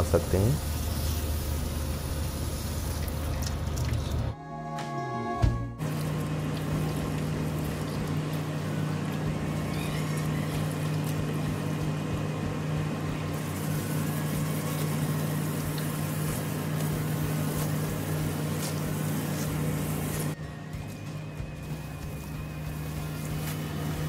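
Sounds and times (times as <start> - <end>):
motor humming: 5.4 - 24.0.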